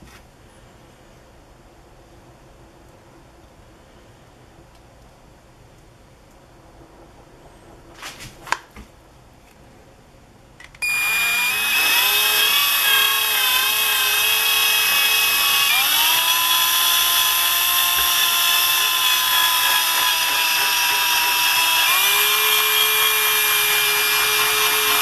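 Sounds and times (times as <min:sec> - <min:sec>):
electric drill motor whine: 0:10.8 - 0:25.0.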